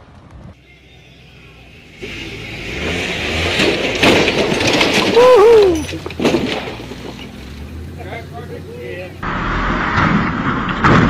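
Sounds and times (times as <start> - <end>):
vehicle crashing on rock: 2.0 - 7.8, 9.4 - 11.0
person crying out: 5.1 - 5.9.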